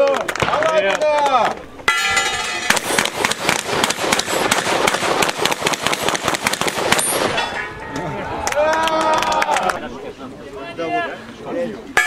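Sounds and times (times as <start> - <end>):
shotgun shots: 2.0 - 7.6.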